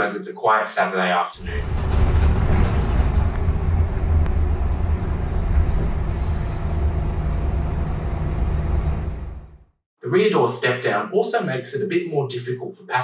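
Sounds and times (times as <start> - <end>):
diesel bus engine drone: 1.4 - 9.7
road noise: 1.4 - 9.7.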